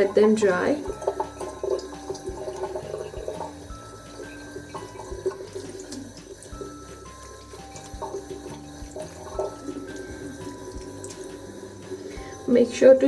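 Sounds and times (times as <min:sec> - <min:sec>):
tap water splashing: 0:00.0 - 0:12.4.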